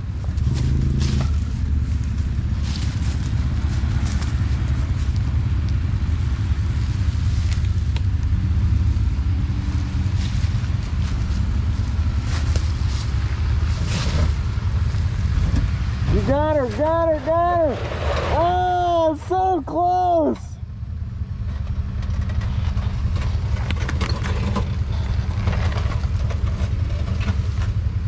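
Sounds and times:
vehicle engine rumbling: 0.0s - 28.0s
knocks and clatter: 21.4s - 27.8s.

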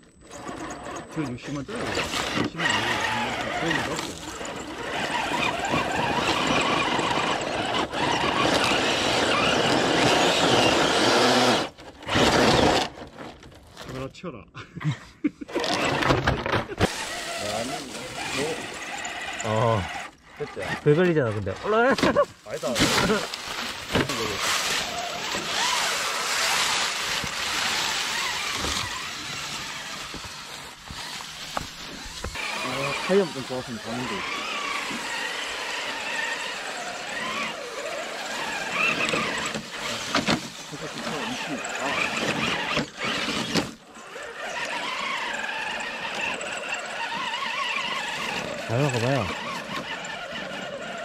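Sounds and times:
toy car tyres spinning in leaves: 0.1s - 14.1s, 15.5s - 51.0s
electric motor whining: 0.2s - 13.4s, 15.5s - 51.0s
dry leaves rustling and crackling: 22.2s - 43.2s.

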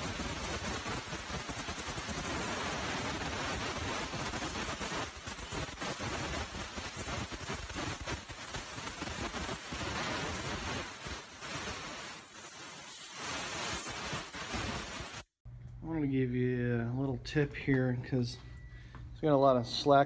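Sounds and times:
pressurised spray hissing: 0.0s - 15.3s.

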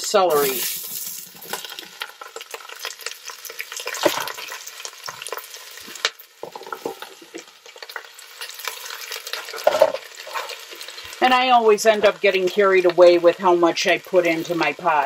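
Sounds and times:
vegetables sizzling in hot oil: 0.0s - 15.0s
vegetable pieces knocking into pot: 3.9s - 4.6s, 9.4s - 10.5s.

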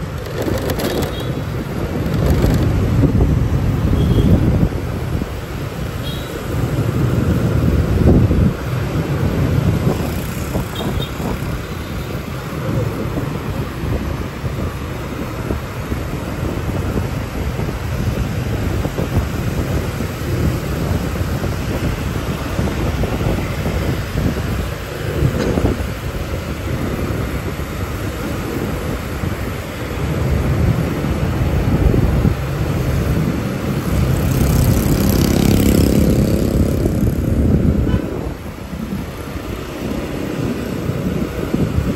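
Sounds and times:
street traffic: 0.0s - 41.9s
wind buffeting microphone: 0.0s - 41.9s
motorbike engine: 33.1s - 40.2s.

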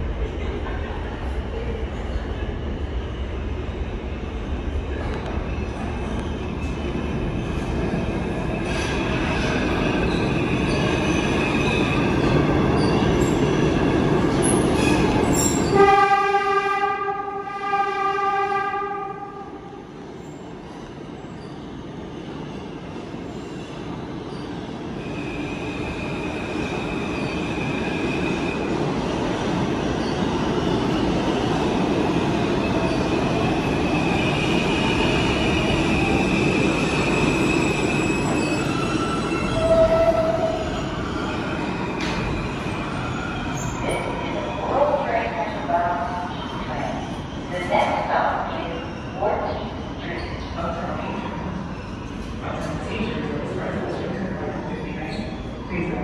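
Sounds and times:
subway train running: 0.0s - 56.0s
subway horn: 15.6s - 19.9s, 39.5s - 40.6s.

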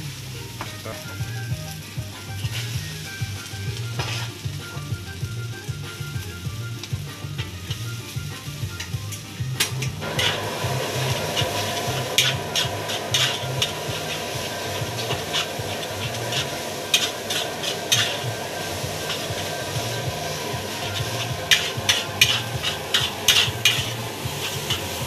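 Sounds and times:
rice sizzling: 0.0s - 25.0s
metal spatula scraping wok: 2.2s - 5.3s, 8.8s - 25.0s.

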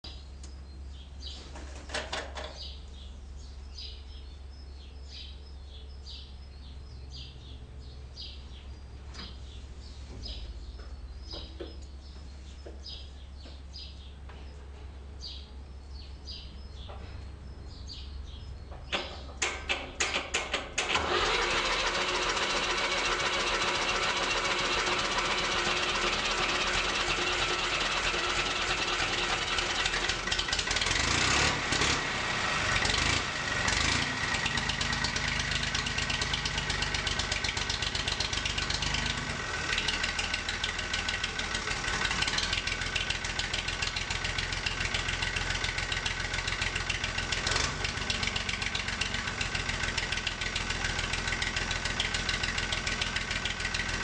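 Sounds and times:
diesel tractor engine running: 0.0s - 54.0s
starter motor cranking: 19.4s - 44.2s.

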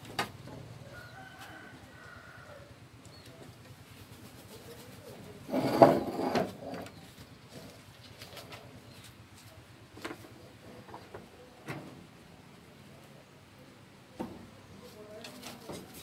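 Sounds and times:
kittens rustling newspaper: 7.0s - 9.8s.

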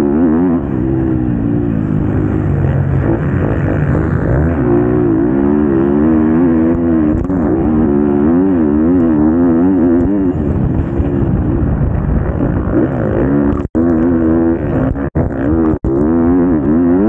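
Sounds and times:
motocross bike engine revving: 0.0s - 17.0s.

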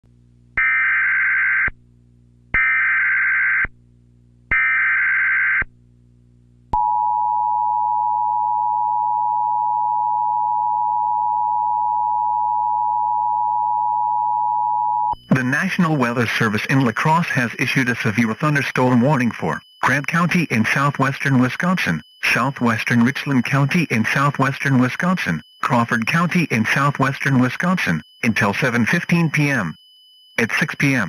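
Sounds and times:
two-tone attention signal: 6.8s - 31.0s
digital data tone bursts: 15.1s - 31.0s.

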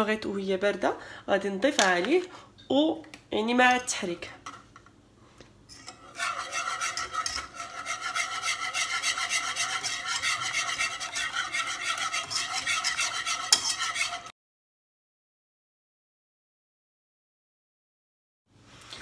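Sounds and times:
whisk scraping and clinking in pan: 5.7s - 14.3s.

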